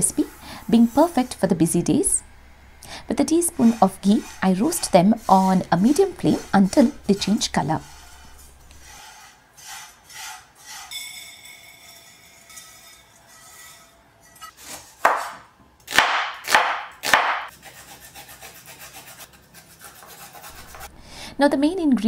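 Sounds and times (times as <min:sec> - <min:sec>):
ginger rubbed on a hand grater: 0:03.5 - 0:10.8.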